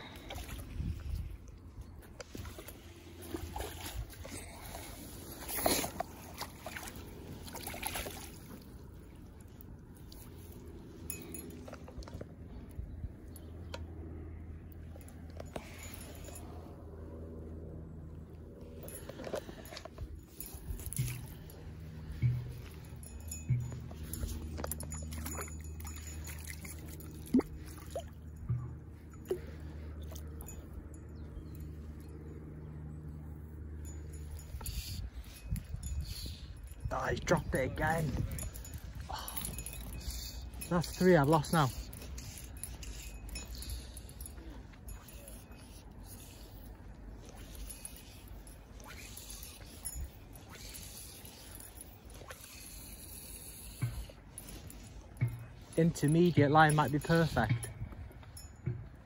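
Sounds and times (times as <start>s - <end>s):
wind rumbling on microphone: 0.0s - 6.3s, 34.1s - 41.0s
steady low rumble: 0.0s - 59.0s
water splashes: 2.4s - 8.7s.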